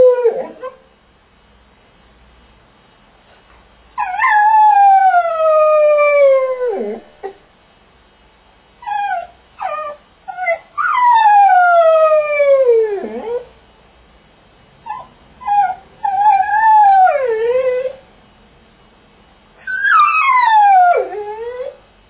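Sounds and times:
dog howling: 0.0s - 0.8s, 14.9s - 18.0s, 19.6s - 21.8s.

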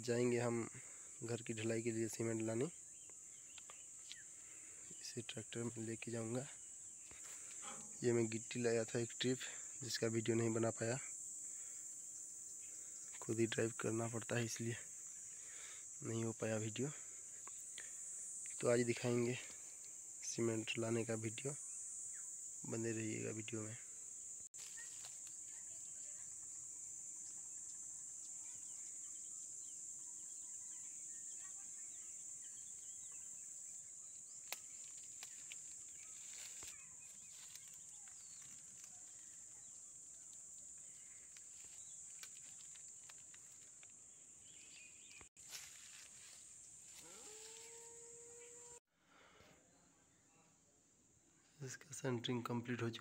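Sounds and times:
high-pitched insect chorus: 0.0s - 48.9s
faint clicks and rustles: 34.4s - 44.0s.

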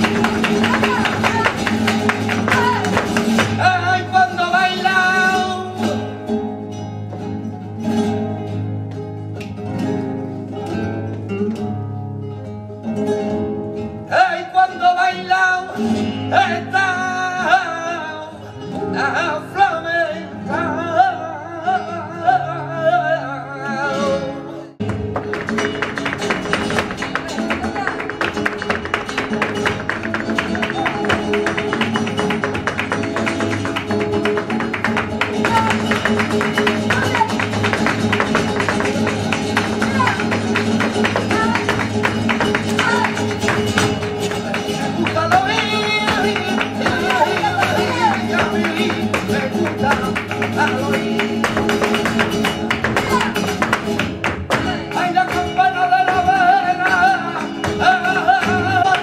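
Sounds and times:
rhythmic hand clapping: 0.0s - 3.8s, 24.8s - 59.0s
guitars strumming: 0.0s - 14.1s, 23.8s - 59.0s
person singing: 30.2s - 53.6s, 54.5s - 59.0s.

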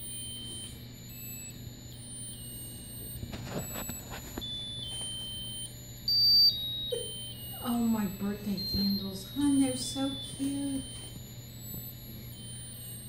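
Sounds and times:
tinny electronic buzzer tune: 0.0s - 13.0s
soft clicks and rustles: 2.2s - 6.2s, 8.2s - 13.0s.

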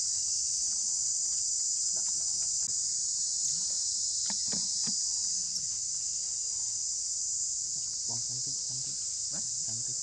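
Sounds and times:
insect chorus buzzing: 0.0s - 10.0s.

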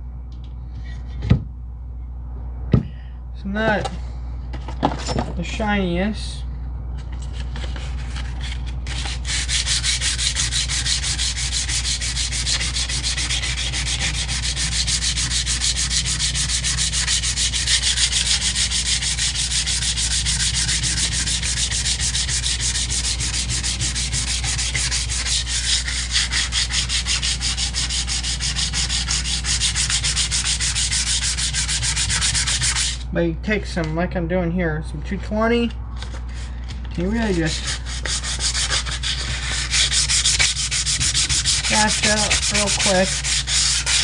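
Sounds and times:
sandpaper scratching on metal: 7.8s - 33.0s, 37.0s - 44.0s.

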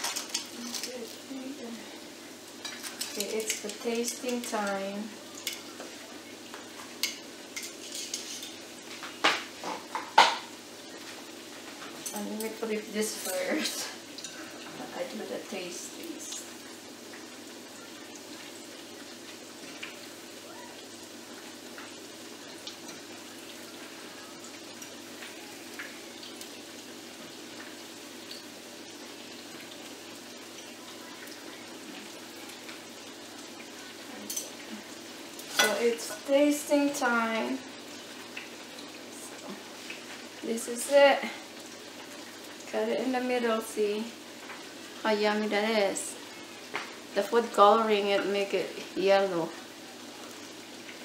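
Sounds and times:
fritters sizzling in hot oil: 0.0s - 51.0s
oil popping and crackling: 0.0s - 51.0s
metal tongs clinking dishes: 2.6s - 4.7s, 7.0s - 8.6s, 34.2s - 34.6s, 35.4s - 36.3s.

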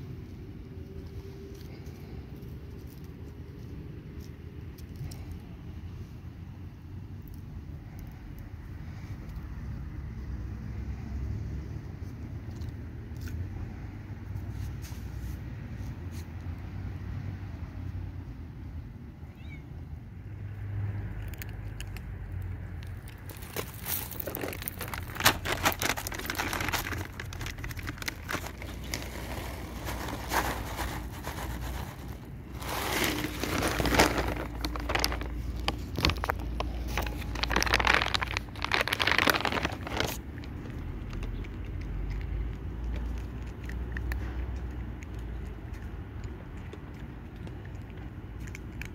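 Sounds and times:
plastic bag crinkling: 22.8s - 41.5s
kibble pouring onto concrete: 22.9s - 40.2s.

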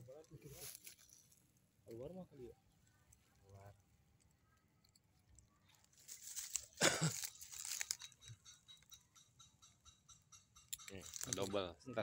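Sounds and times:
dry leaves crackling and crunching: 0.2s - 1.5s, 5.6s - 8.4s.

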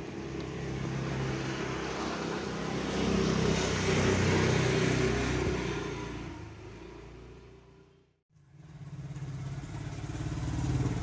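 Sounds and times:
vehicle engine passing: 8.5s - 11.0s.

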